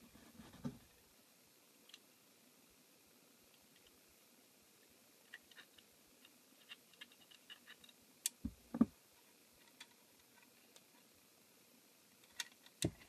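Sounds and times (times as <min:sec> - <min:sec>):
plastic parts clicking and scratching: 0:05.3 - 0:08.9, 0:09.6 - 0:11.0, 0:12.2 - 0:13.0
dull thumps: 0:08.4 - 0:09.0.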